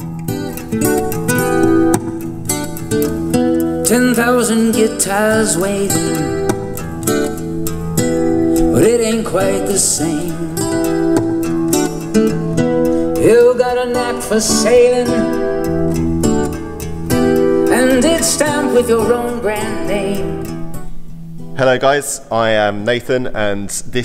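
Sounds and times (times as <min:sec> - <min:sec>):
guitar: 0:00.0 - 0:24.0
person singing: 0:03.8 - 0:07.4, 0:08.2 - 0:15.9, 0:17.2 - 0:20.6.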